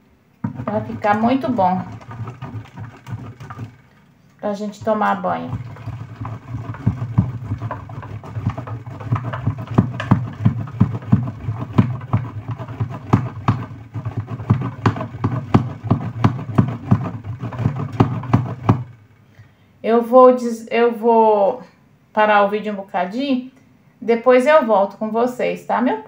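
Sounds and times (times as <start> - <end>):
soap grated on metal grater: 0.4 - 3.9, 4.6 - 19.0.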